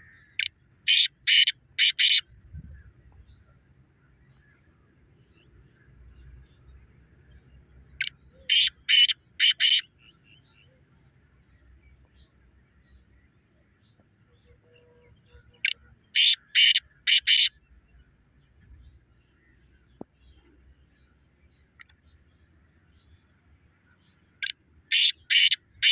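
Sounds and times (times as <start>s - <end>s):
partridge calling harshly: 0.9s - 2.2s, 8.5s - 9.8s, 15.6s - 17.5s, 24.9s - 25.9s.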